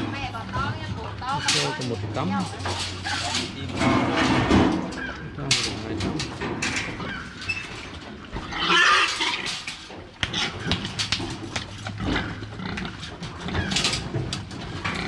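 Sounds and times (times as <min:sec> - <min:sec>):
knocks and clanks from metal crate: 0:00.0 - 0:15.0
pigs squealing: 0:04.8 - 0:05.4, 0:06.8 - 0:11.1, 0:11.7 - 0:15.0.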